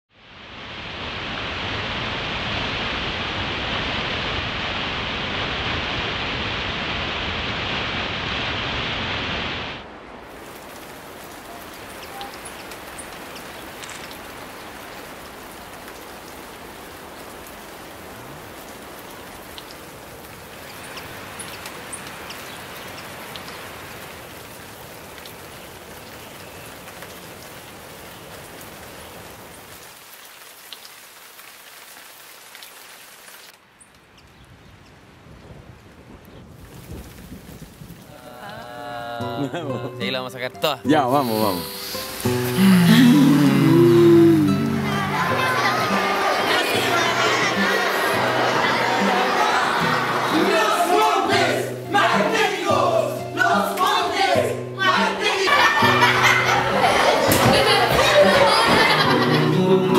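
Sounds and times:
steady rainfall: 0.1s - 59.9s
white water rushing: 0.2s - 29.9s, 40.7s - 59.9s
raindrops ticking: 10.2s - 32.8s.

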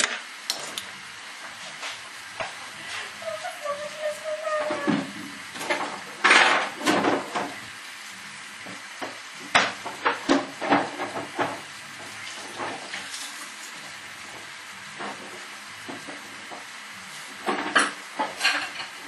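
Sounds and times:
meat sizzling in a pan: 5.1s - 19.0s.

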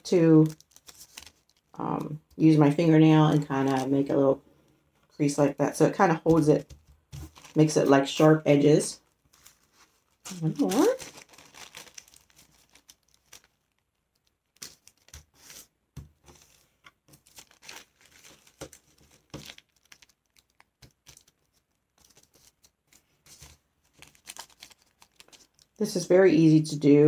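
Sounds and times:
tissue paper crinkling: 0.0s - 2.1s, 7.1s - 15.7s, 16.3s - 25.8s.

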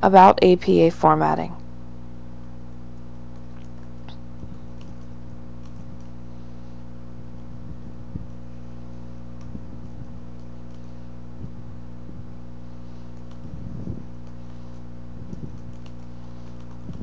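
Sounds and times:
low electrical hum: 0.0s - 17.0s
keyboard clicks: 3.3s - 6.2s, 9.3s - 10.9s, 13.0s - 13.5s, 14.2s - 17.0s.

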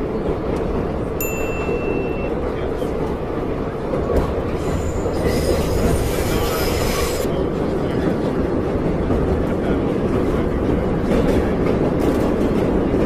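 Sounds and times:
subway train low rumble: 0.0s - 13.0s
wheels squealing on rails: 4.5s - 7.3s.

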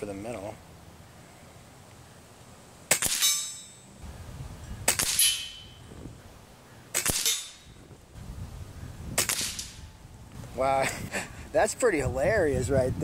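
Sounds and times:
air rifle shots: 2.9s - 3.6s, 4.8s - 5.5s, 6.9s - 7.7s, 9.1s - 9.8s.

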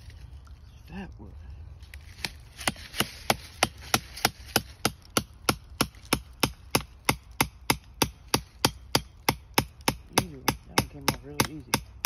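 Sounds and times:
hammer striking tool into wood: 2.6s - 12.0s.

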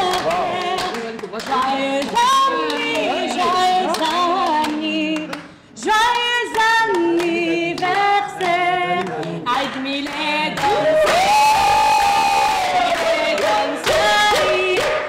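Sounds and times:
woman singing unaccompanied: 0.0s - 11.1s.

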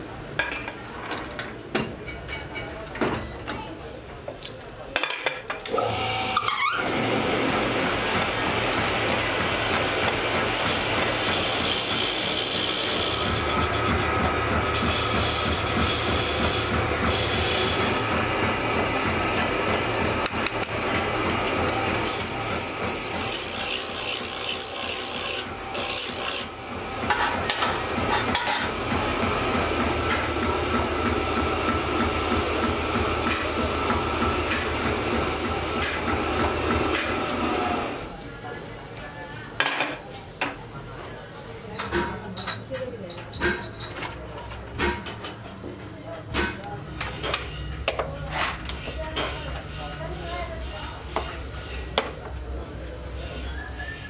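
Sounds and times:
metal lathe cutting steel: 5.8s - 26.7s.

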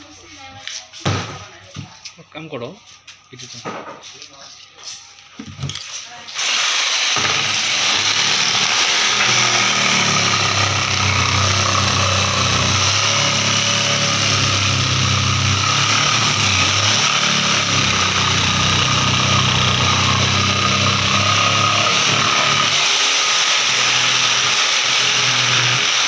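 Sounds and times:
electric jigsaw sawing wood: 6.3s - 26.0s.

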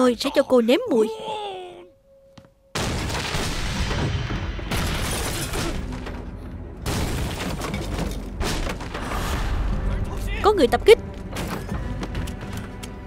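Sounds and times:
debris and shattering glass: 2.9s - 9.2s.

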